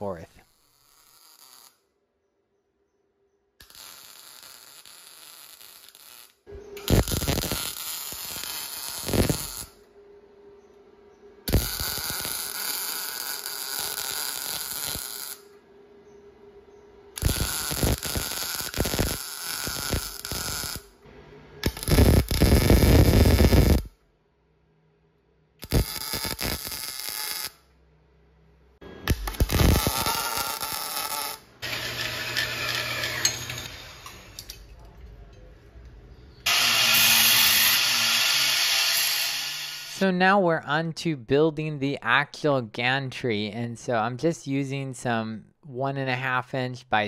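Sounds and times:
welding arc crackling and hissing: 0.6s - 1.8s, 3.6s - 9.8s, 11.5s - 15.5s, 17.2s - 21.0s, 21.6s - 23.9s, 25.6s - 27.6s, 29.1s - 34.4s, 36.5s - 40.0s
faint steady hum: 9.0s - 12.5s
belt grinder grinding metal: 29.2s - 34.2s, 36.5s - 40.0s
bandsaw humming: 31.6s - 34.2s, 36.5s - 40.0s.

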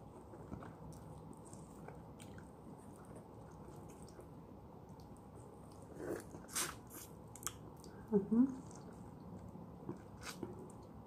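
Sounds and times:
wet sucking and chewing: 0.4s - 8.0s.

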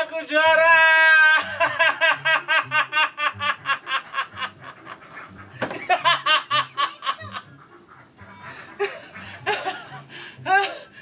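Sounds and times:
man laughing hysterically: 1.1s - 7.6s, 8.4s - 11.0s.

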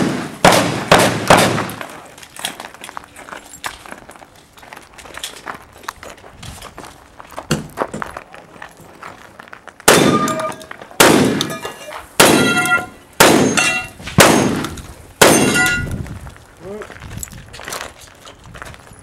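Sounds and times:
shotgun shots: 0.0s - 1.8s, 9.9s - 11.6s, 12.2s - 15.9s
steel target clanging: 9.9s - 10.7s, 11.4s - 15.9s.

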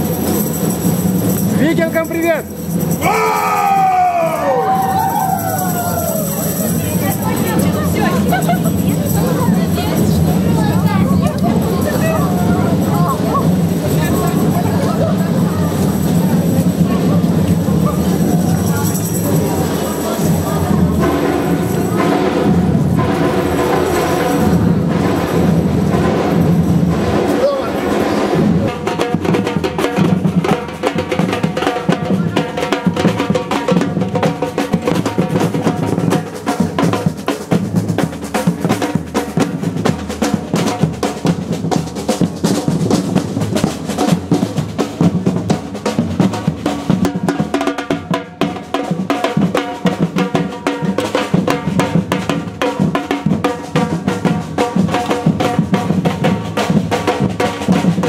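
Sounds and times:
snare drums: 19.3s - 58.0s
bass drums beaten with mallets: 20.3s - 58.0s.

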